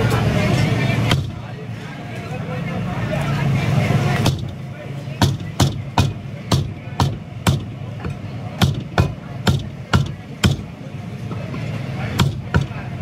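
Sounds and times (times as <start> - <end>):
cleaver chopping on wooden block: 5.2 - 10.7.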